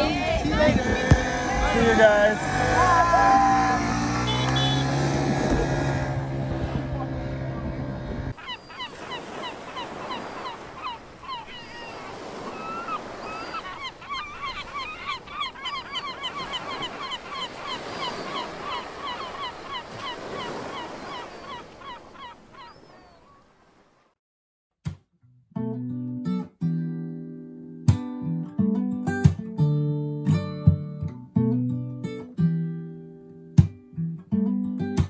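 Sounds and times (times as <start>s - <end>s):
gulls calling: 0.0s - 23.8s
harbour ambience: 0.0s - 23.9s.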